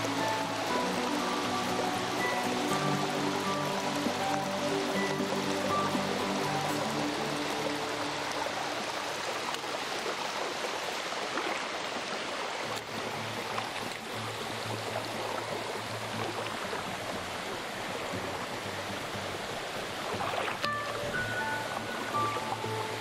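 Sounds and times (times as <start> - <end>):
soft background music: 0.0 - 10.4, 12.6 - 23.0
flowing water rushing: 0.0 - 23.0.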